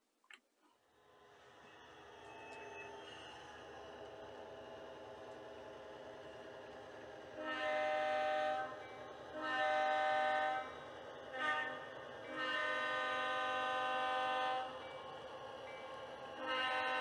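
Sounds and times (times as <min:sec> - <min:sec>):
faint engine sound: 0:00.8 - 0:17.0
model locomotive horn blasts: 0:07.2 - 0:14.9, 0:16.3 - 0:17.0.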